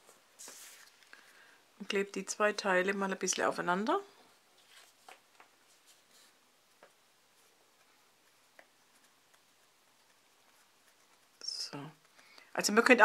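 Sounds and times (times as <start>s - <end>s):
paper ticks and rustles: 4.7s - 6.0s.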